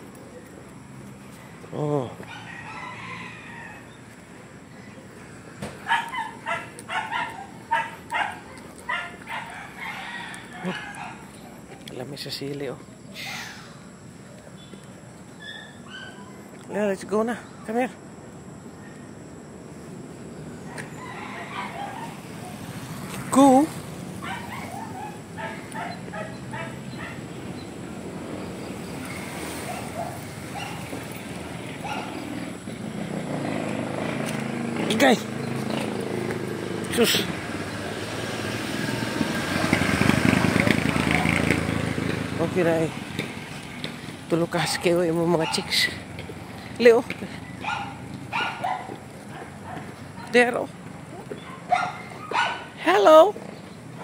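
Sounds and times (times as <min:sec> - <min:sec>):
rooster crowing: 0:02.2 - 0:04.1, 0:09.0 - 0:11.4, 0:20.6 - 0:22.5
dog yipping: 0:05.8 - 0:11.3, 0:15.4 - 0:16.6, 0:20.7 - 0:22.6, 0:24.2 - 0:27.7, 0:29.0 - 0:31.1, 0:31.8 - 0:32.3, 0:44.6 - 0:46.0, 0:47.6 - 0:50.4, 0:51.1 - 0:52.8.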